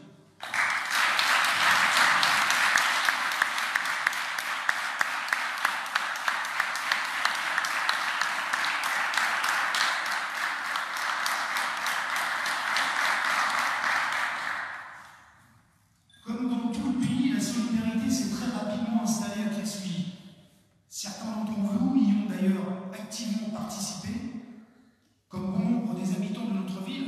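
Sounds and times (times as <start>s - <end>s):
small group clapping: 0.4s - 15.2s.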